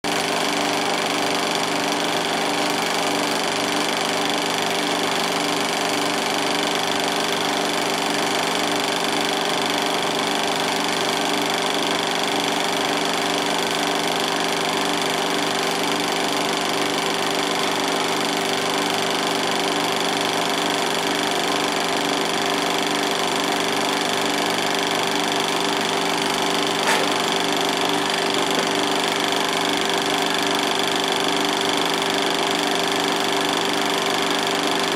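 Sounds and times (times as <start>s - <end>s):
film projector running: 0.0s - 34.9s.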